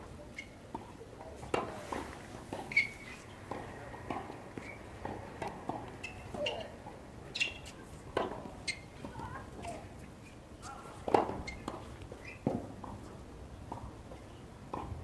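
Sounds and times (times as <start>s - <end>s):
tennis balls struck by rackets: 0.7s - 9.8s, 11.0s - 15.0s
short high squeaks: 2.7s - 3.4s, 6.0s - 6.7s, 7.3s - 7.7s, 8.6s - 8.9s.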